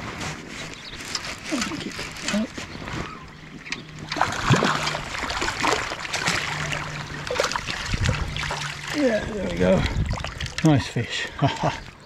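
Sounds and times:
water trickling in a stream: 3.6 - 12.0
fish splashing in water: 4.0 - 10.8.

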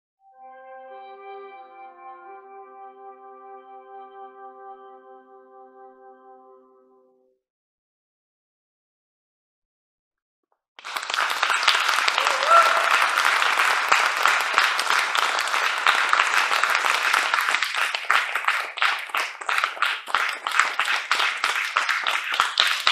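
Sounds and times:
audience applauding: 10.8 - 22.9
pitched call from audience: 10.9 - 19.4.

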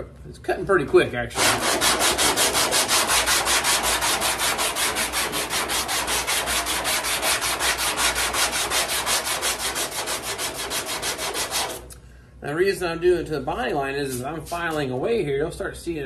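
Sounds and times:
sandpaper rasping on body filler: 1.4 - 11.9.

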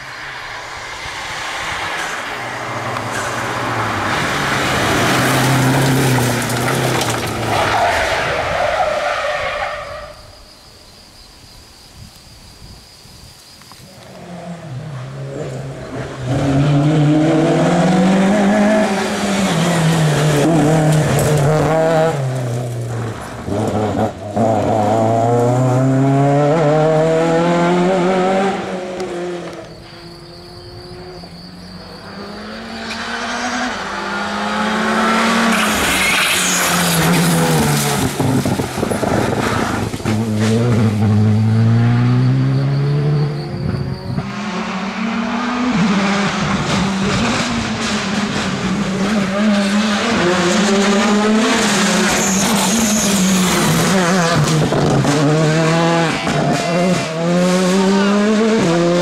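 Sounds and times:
rally car engine passing: 0.0 - 10.0, 14.0 - 59.0
car engine revving through gears: 14.1 - 59.0.

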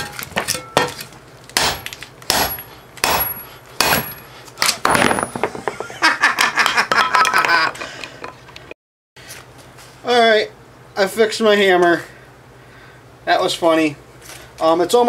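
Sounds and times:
hammer striking steel: 1.6 - 4.3
metal knocks clattering: 4.0 - 6.1.

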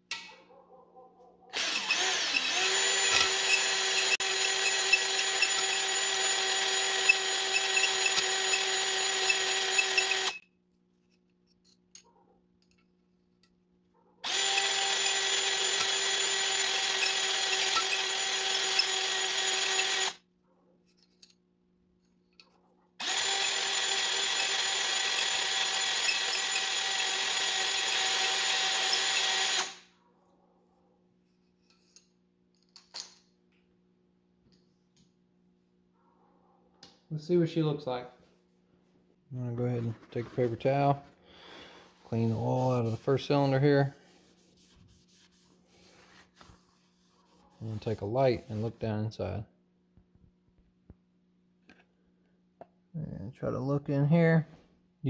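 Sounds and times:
electric drill spinning a hone: 1.6 - 10.4, 14.2 - 20.2, 23.0 - 29.9.

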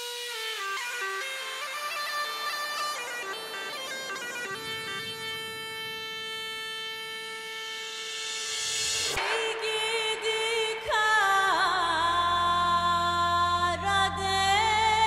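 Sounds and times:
bagpipe-like wind instrument melody: 0.0 - 9.0.

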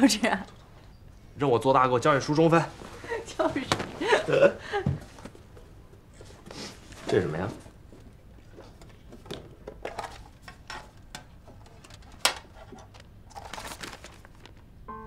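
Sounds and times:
paper rustling: 11.9 - 14.7.

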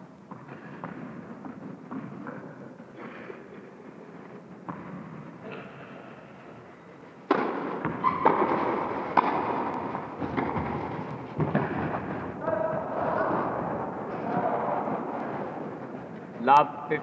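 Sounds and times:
indoor hall noise: 0.0 - 17.0
racket hitting tennis ball: 7.2 - 16.2.

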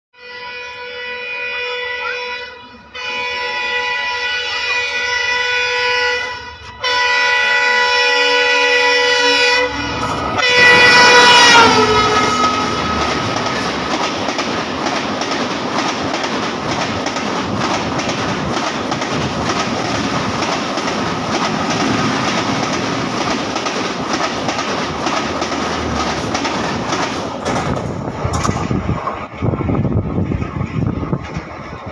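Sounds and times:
train horn blasts: 0.2 - 13.8
train coaches clattering and rumbling: 2.0 - 31.9.

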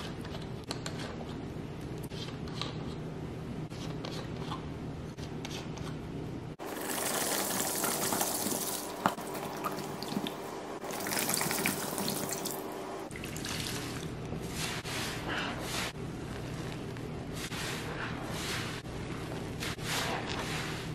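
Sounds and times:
liquid pouring and fizzing: 6.6 - 14.1.

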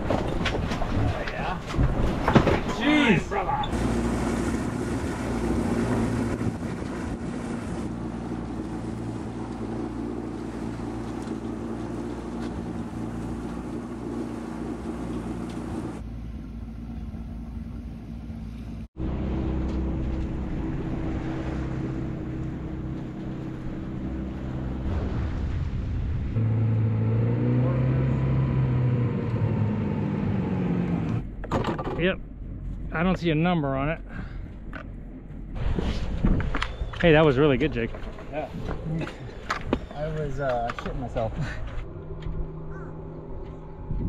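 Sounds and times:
water rushing past hull: 0.0 - 30.9
boat engine running: 0.0 - 44.0
wind buffeting microphone: 3.7 - 9.6, 34.5 - 44.0.

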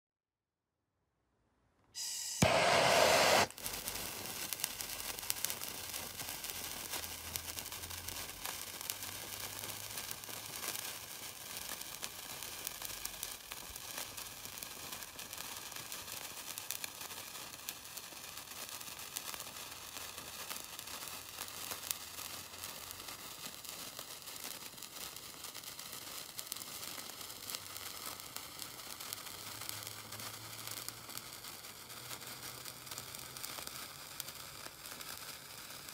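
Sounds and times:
sparkler fizzing crackle: 2.0 - 35.9.

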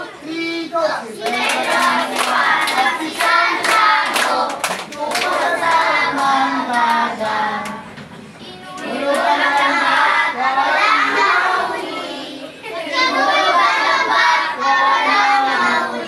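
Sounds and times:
handclaps: 1.2 - 7.0
children singing: 1.2 - 16.0.

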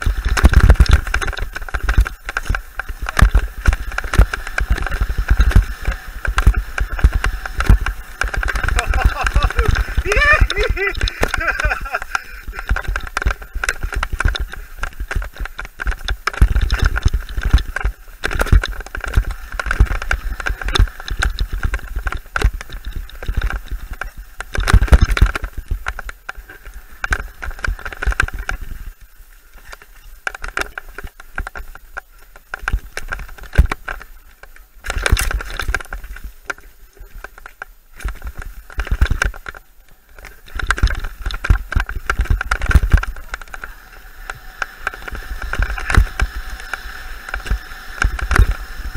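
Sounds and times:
bike rattling and knocking: 0.0 - 29.0, 29.6 - 48.9
low rumbling buffeting: 1.0 - 13.6.

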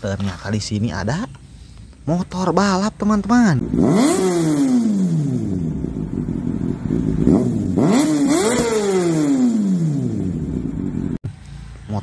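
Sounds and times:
motorcycle engine revving: 2.8 - 12.0.

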